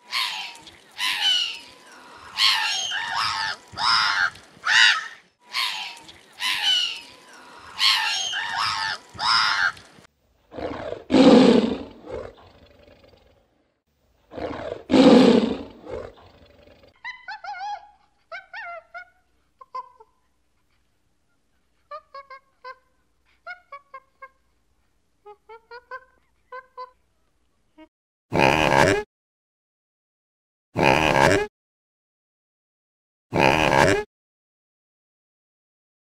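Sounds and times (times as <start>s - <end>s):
monkey chirping: 0.1s - 9.8s, 17.0s - 19.9s
seabirds squawking: 0.1s - 9.9s
tiger roaring: 10.5s - 13.5s, 14.3s - 16.9s.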